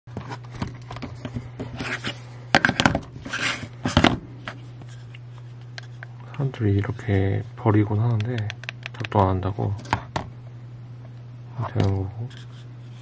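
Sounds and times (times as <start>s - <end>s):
steady low hum: 0.1s - 13.0s
case scraping on mat: 3.2s - 4.1s.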